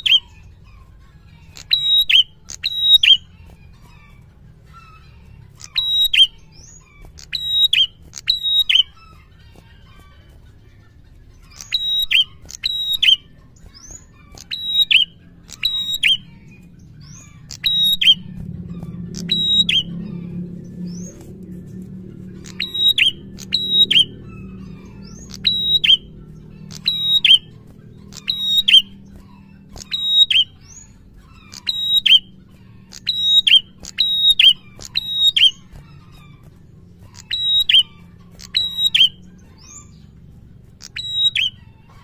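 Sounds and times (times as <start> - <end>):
low hum: 11.1 - 42.0
bird chip notes: 11.3 - 42.0.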